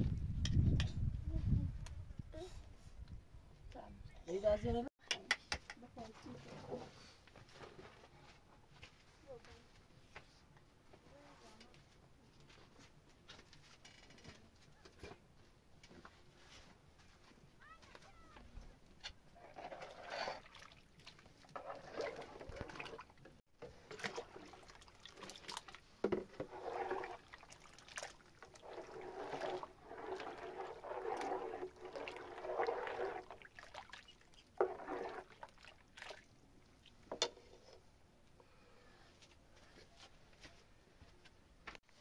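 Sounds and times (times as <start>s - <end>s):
water sloshing and pouring: 19.4s - 37.0s.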